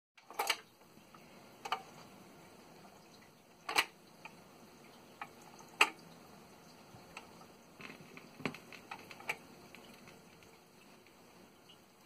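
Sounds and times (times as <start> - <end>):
record changer mechanical clicks: 3.7 - 4.4.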